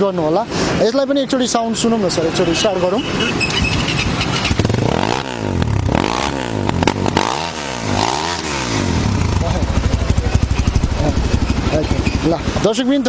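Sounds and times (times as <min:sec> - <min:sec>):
dirt bike engine revving: 0:03.1 - 0:12.8.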